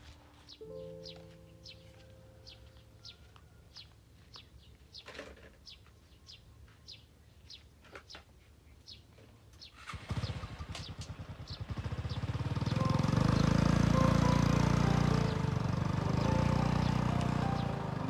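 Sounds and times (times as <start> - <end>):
small motorcycle engine running: 9.8 - 18.0.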